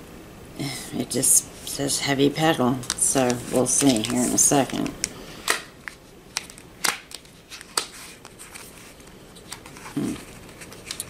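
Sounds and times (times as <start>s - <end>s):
packaging clicks and taps: 2.8s - 8.0s.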